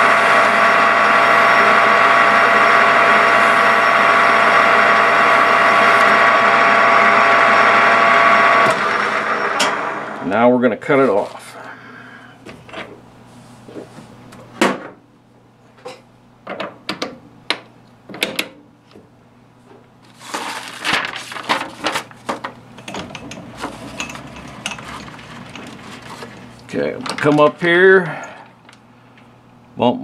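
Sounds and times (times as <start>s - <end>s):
steady low hum: 0.0s - 18.1s.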